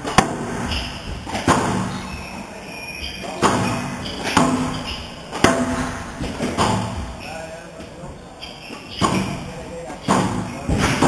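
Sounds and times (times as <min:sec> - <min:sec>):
squash ball cracks echoing: 0:00.0 - 0:02.1, 0:03.3 - 0:07.2, 0:09.0 - 0:11.0.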